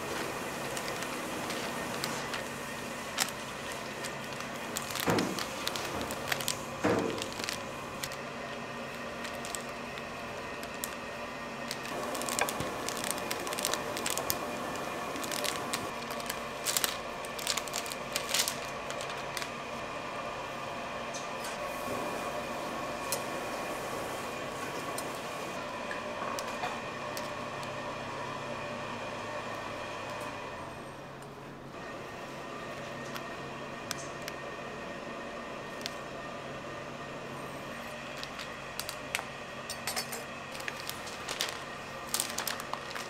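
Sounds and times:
plastic film crinkling: 0:00.0 - 0:19.9, 0:26.3 - 0:27.8, 0:35.7 - 0:36.0, 0:37.6 - 0:39.4, 0:40.4 - 0:43.0
steady background hum: 0:00.0 - 0:43.0.

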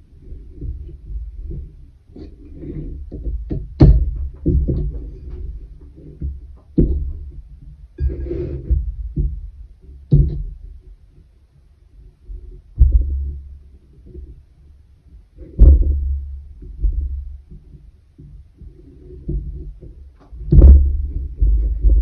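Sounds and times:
dull low thumps: 0:00.0 - 0:11.4, 0:12.2 - 0:22.0
scratchy rustle: 0:08.0 - 0:08.8.

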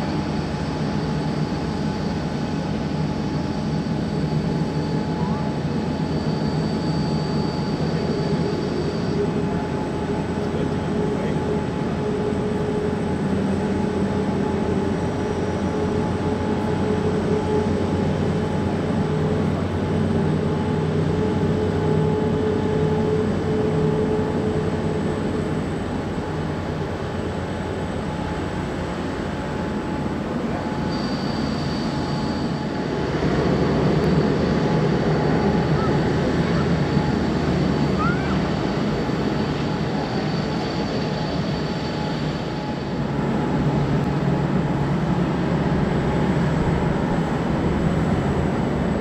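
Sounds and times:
jet engines rumbling: 0:00.0 - 0:49.0
thin high whine: 0:30.5 - 0:38.5.

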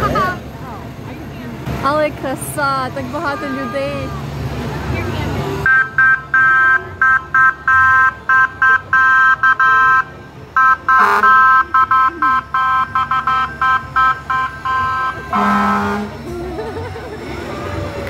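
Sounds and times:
fire engine horn two-note blasts: 0:05.6 - 0:10.0, 0:10.6 - 0:16.2.

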